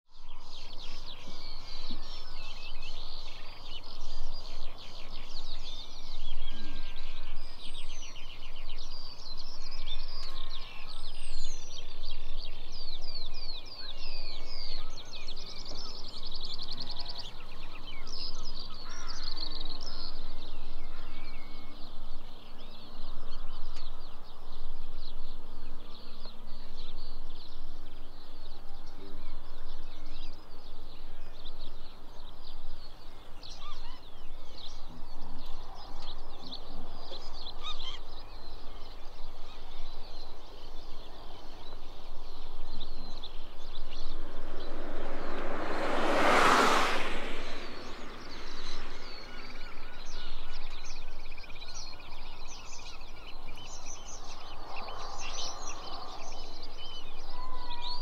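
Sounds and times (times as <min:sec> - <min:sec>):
small birds singing: 0:00.1 - 0:58.0
low steady rumble: 0:42.6 - 0:50.2.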